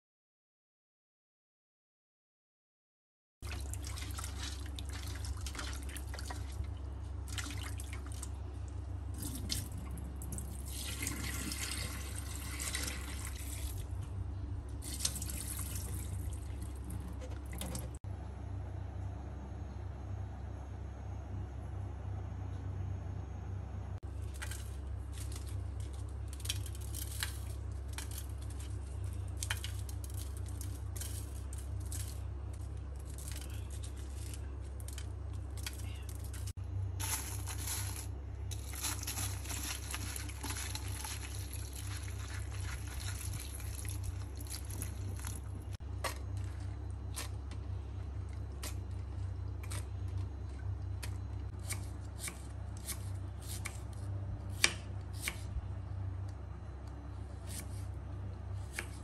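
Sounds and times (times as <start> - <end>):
steady low hum: 3.4 - 59.0.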